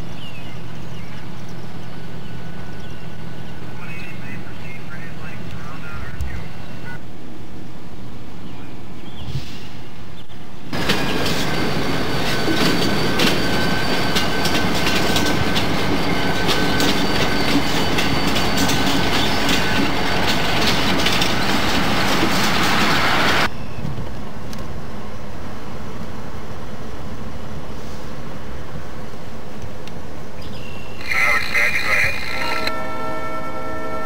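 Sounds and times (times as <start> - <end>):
train rumble: 0.0 - 30.4
train wheels clacking over rail joints: 10.8 - 22.9.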